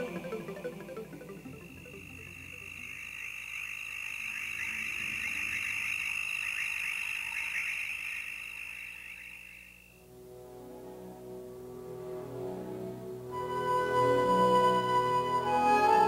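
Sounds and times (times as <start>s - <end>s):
frogs trilling: 0.0s - 10.1s.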